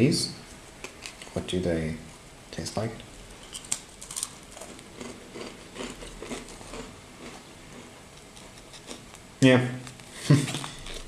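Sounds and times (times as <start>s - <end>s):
cracker bite crack: 3.5s - 7.4s
chewing dry cracker crunches: 3.5s - 9.2s, 9.8s - 11.0s.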